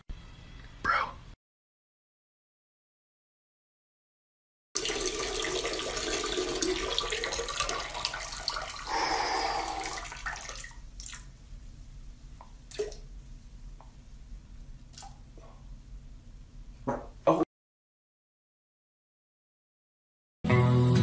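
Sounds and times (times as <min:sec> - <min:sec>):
running tap water: 0:04.8 - 0:11.3.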